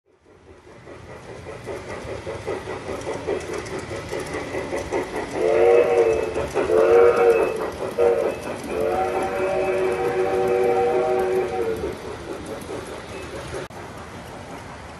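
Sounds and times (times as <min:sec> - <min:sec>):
model steam locomotive chuffing: 0:00.1 - 0:14.9
chime steam whistle blasts: 0:05.4 - 0:11.8.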